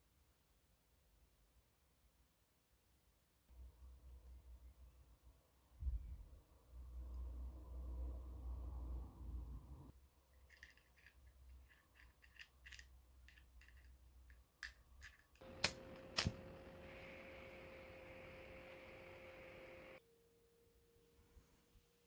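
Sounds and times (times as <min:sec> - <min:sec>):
lighter clicks: 0:15.4 - 0:17.6
flame hissing: 0:15.4 - 0:20.0
faint steady tone: 0:15.4 - 0:22.0.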